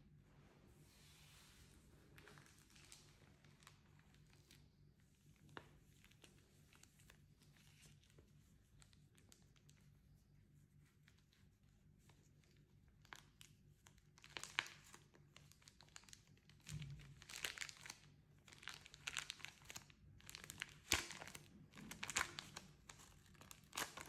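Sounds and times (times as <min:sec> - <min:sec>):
paper booklet crinkling: 0:01.5 - 0:09.9, 0:10.8 - 0:24.0.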